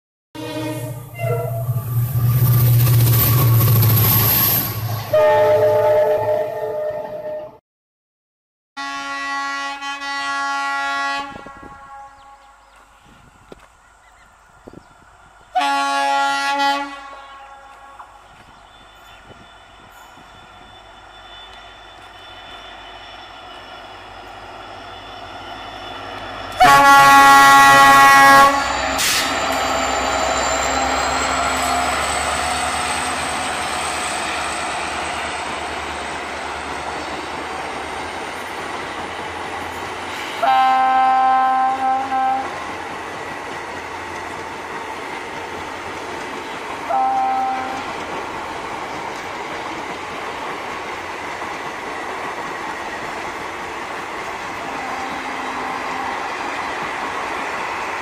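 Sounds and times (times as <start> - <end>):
train horn blasts: 0.4 - 2.2, 5.0 - 7.6, 8.8 - 12.6, 15.5 - 34.8, 40.3 - 42.6, 46.8 - 48.1, 54.6 - 56.4.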